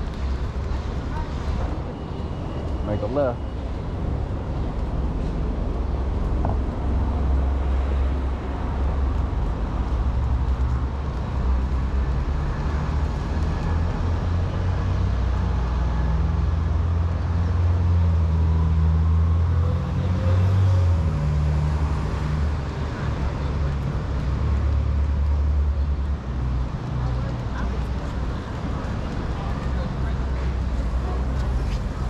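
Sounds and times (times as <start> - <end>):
road traffic rumble: 0.0 - 32.0.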